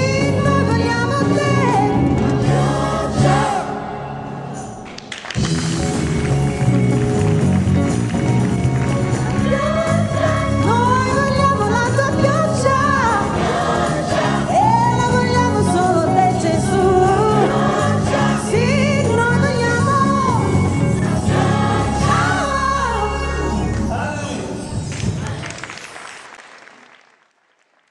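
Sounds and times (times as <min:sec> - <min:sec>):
gospel choir singing: 0:00.0 - 0:04.9, 0:09.4 - 0:23.9
low instrumental backing: 0:04.8 - 0:24.0.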